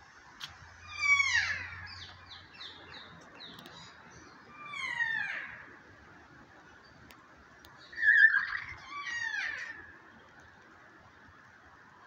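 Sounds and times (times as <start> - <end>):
parrot harsh calls: 8.0 - 9.8.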